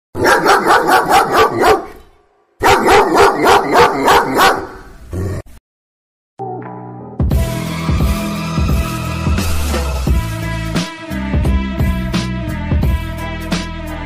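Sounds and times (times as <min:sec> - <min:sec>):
dog barking rapidly: 0:00.2 - 0:02.0, 0:02.6 - 0:04.9.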